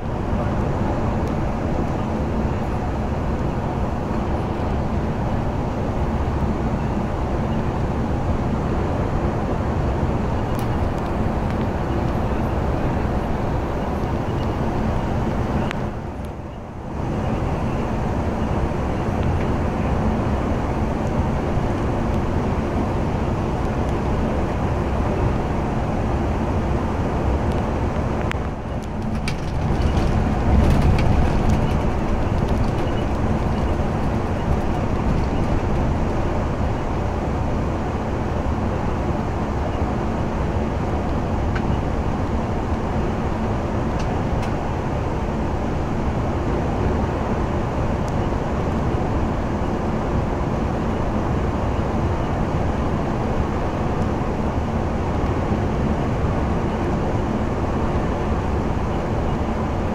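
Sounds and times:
bus engine hum: 0.0 - 59.9
tyre and road rumble: 17.0 - 37.7.

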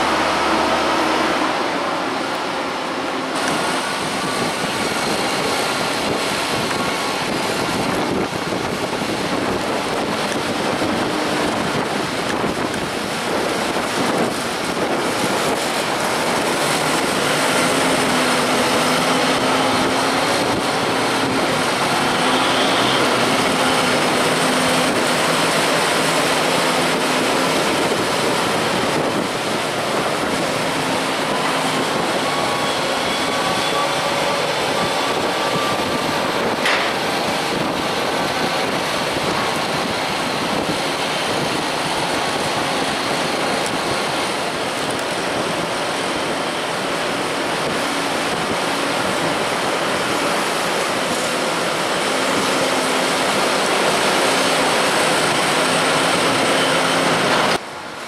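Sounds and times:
tractor engines running: 0.0 - 58.0.

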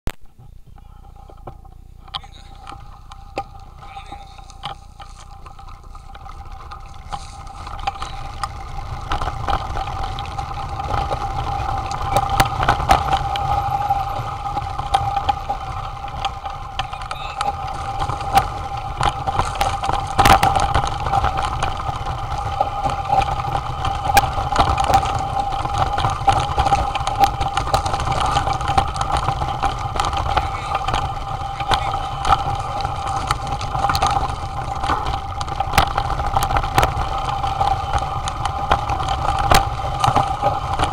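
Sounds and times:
bike knocking and rattling on stones: 0.1 - 40.9
wind and tyres rumbling: 0.1 - 40.9.

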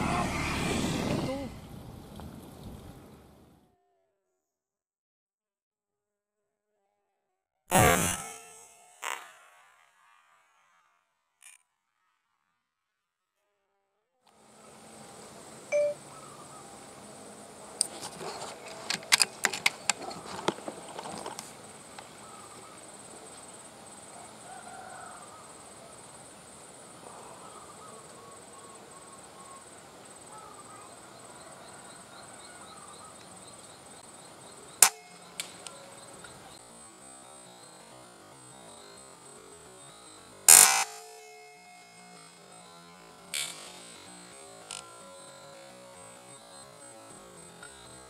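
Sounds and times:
high insect hum: 14.3 - 48.0.

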